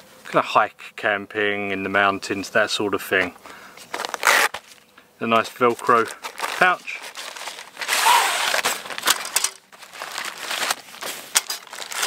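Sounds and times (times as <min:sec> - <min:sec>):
items sliding out of fabric pouch: 0:03.8 - 0:04.8, 0:05.8 - 0:12.0
plastic bags crinkling: 0:03.9 - 0:04.8, 0:05.4 - 0:12.0.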